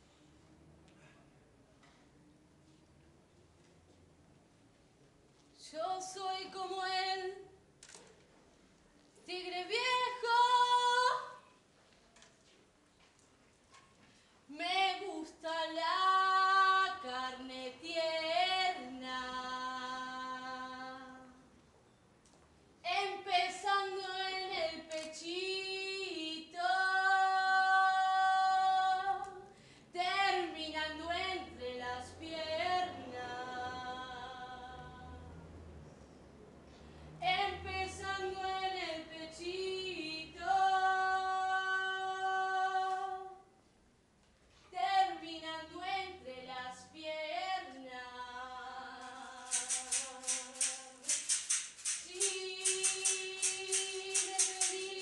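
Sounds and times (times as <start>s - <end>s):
woman singing unaccompanied: 5.6s - 7.5s, 9.2s - 11.5s, 14.5s - 21.4s, 22.8s - 35.2s, 37.2s - 43.5s, 44.7s - 55.0s.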